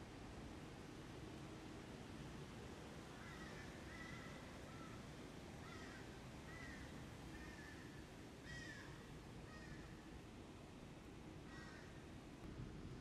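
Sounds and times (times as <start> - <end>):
faint bird calls: 3.2 - 5.0, 5.6 - 10.0, 11.5 - 12.0.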